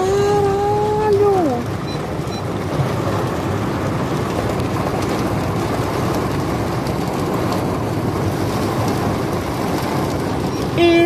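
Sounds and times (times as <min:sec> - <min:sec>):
car road noise: 0:00.0 - 0:11.0
heavy rain and wind on car: 0:00.0 - 0:11.0.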